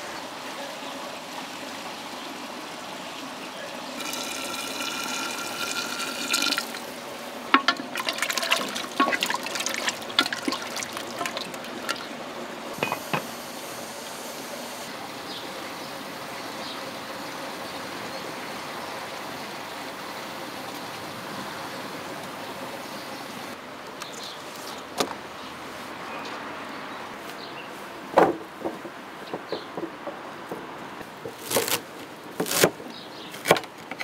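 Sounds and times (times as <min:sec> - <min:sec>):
water pouring into pot: 0:04.0 - 0:06.9, 0:07.6 - 0:12.2
metal lid clanking: 0:07.5 - 0:09.4, 0:12.8 - 0:13.3
steady hiss: 0:12.4 - 0:24.7.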